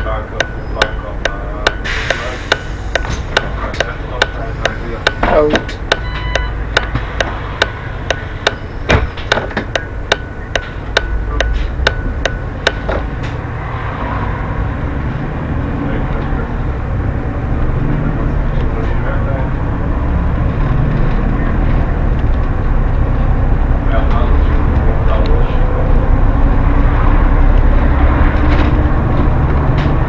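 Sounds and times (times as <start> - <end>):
turn indicator ticking: 0.0 - 13.4
bus engine running: 0.0 - 30.0.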